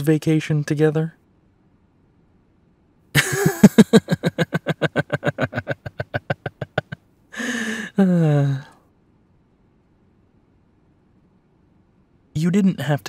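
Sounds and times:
man laughing: 3.2 - 8.6
breath out: 7.4 - 8.9.

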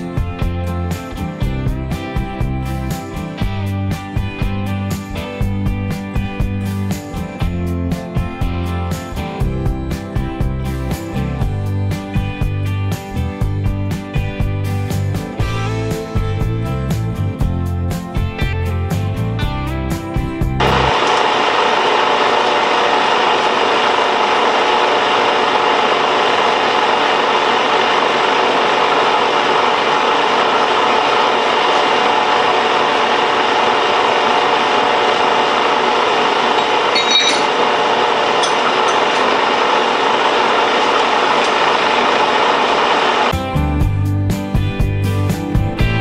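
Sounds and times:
metal lathe whirring: 20.6 - 43.3.

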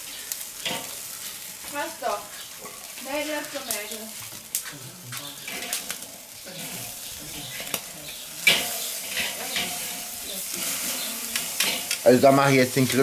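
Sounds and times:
meat sizzling on a grill: 0.0 - 13.0
metal tongs clicking on grate: 7.5 - 10.0, 11.3 - 12.1.

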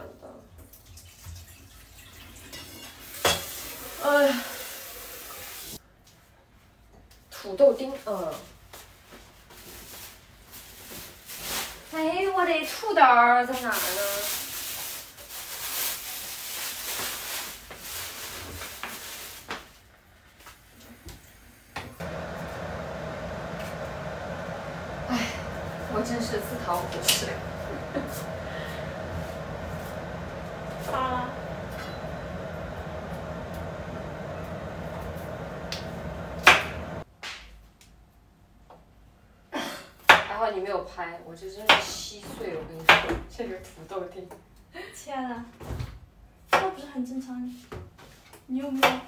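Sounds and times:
plastic bag rustling: 13.6 - 19.5
steady hum: 22.0 - 37.0.

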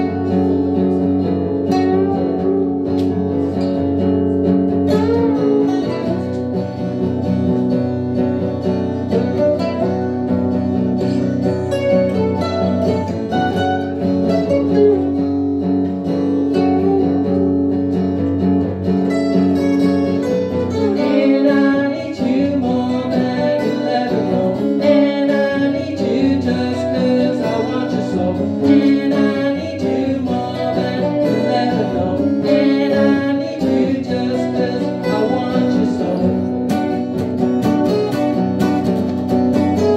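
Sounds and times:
acoustic guitars strumming: 0.0 - 39.9.

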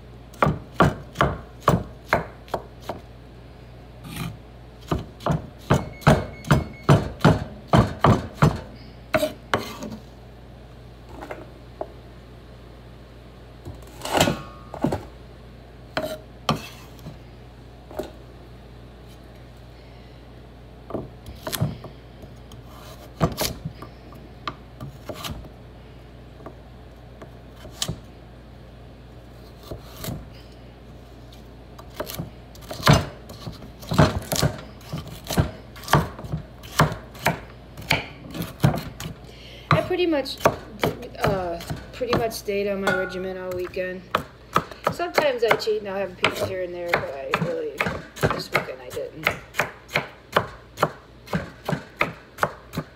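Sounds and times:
knife chopping on wooden board: 0.4 - 3.0, 4.1 - 10.0, 31.9 - 52.9.

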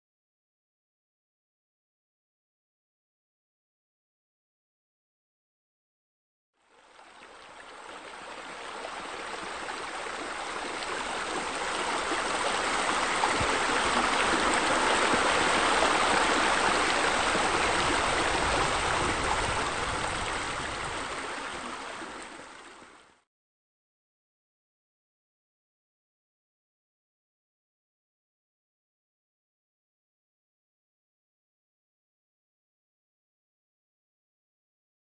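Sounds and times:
water rushing into pool: 7.3 - 23.0.

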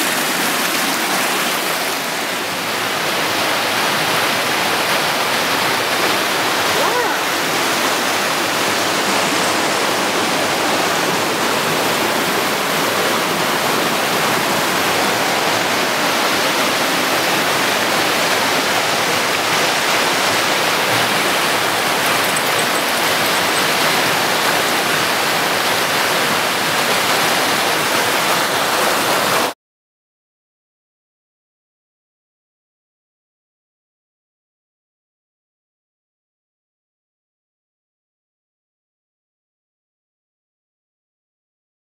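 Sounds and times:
stream rushing over stones: 0.0 - 29.6.

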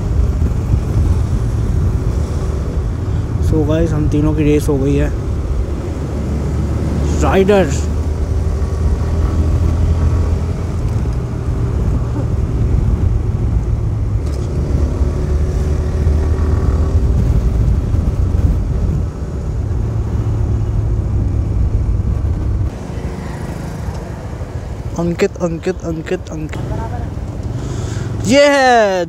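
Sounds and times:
low wind rumble on microphone: 0.0 - 28.3.

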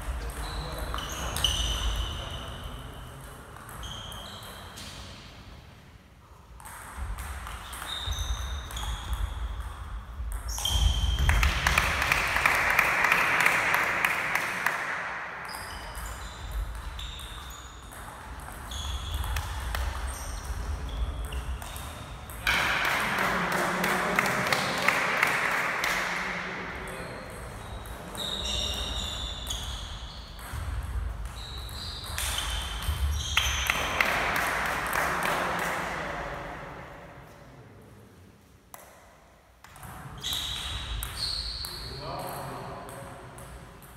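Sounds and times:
table tennis ball hits: 16.0 - 23.4.

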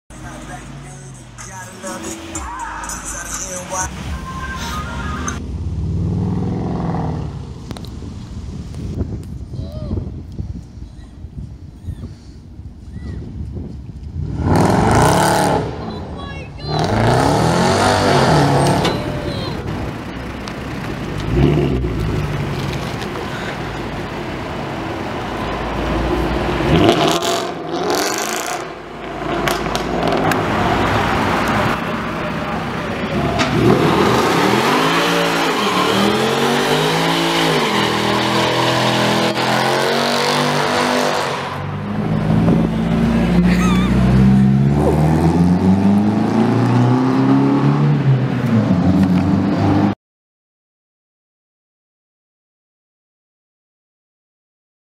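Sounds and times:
car engine revving: 0.1 - 7.9, 14.1 - 50.0
tyres spinning in a burnout: 30.2 - 41.6.

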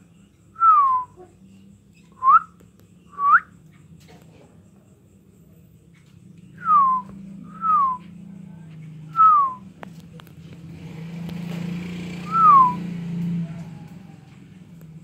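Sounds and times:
whistles sliding down in pitch: 12.2 - 12.8.

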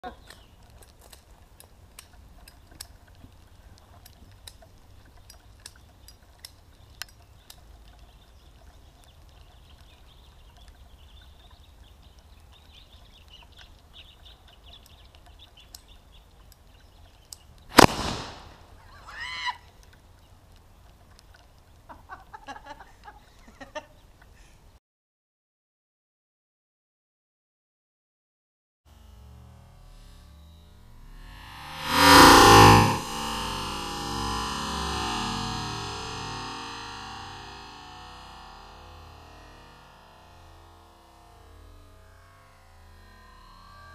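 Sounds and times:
small clicks: 0.1 - 18.8, 19.5 - 24.4
loud explosive bang: 17.8 - 18.6.

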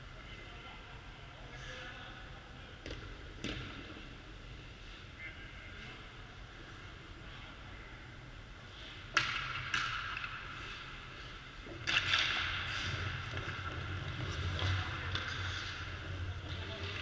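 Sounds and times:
hockey sticks and puck clacking: 2.8 - 3.8, 9.0 - 17.0.

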